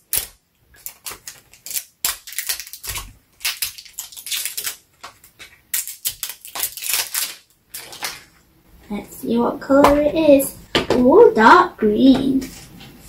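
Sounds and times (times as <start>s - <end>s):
plastic wrapper crinkling: 0.0s - 8.5s.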